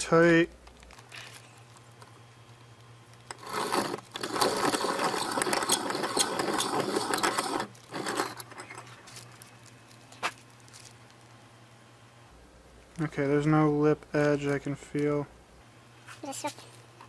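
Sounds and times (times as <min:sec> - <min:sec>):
piston ring filer grinding: 0:03.3 - 0:08.8.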